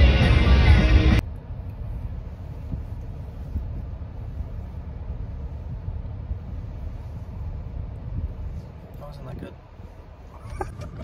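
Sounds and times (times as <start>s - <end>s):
music: 0.0s - 1.2s
low rumble in car cabin: 0.0s - 11.0s.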